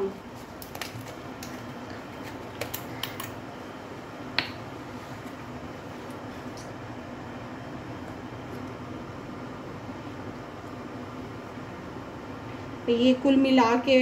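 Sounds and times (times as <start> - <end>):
low background hum: 0.0 - 14.0
objects clicking and tapping: 0.6 - 3.4.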